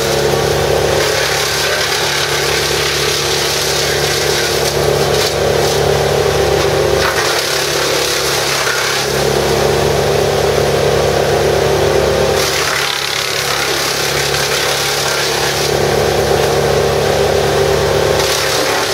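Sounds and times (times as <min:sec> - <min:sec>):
chipper engine drone: 0:00.0 - 0:18.9
branches being chipped: 0:01.0 - 0:09.2, 0:18.2 - 0:18.9.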